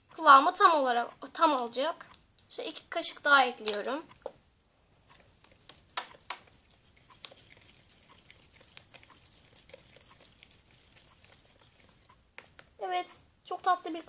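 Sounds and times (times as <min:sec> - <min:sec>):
slime stirred with wet clicks: 0:05.0 - 0:12.8.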